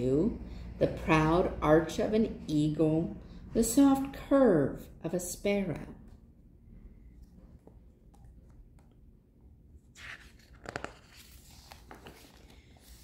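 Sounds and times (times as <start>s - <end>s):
paper page turning: 9.9s - 13.0s.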